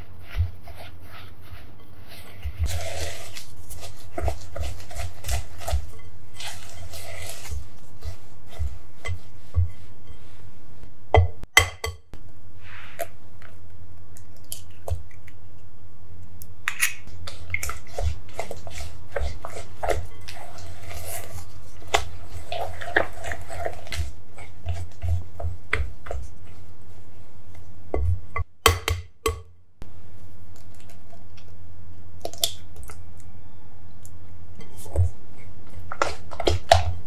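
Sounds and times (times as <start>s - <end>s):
spatula scraping bowl: 0.0s - 10.6s, 17.0s - 28.5s, 34.6s - 37.0s.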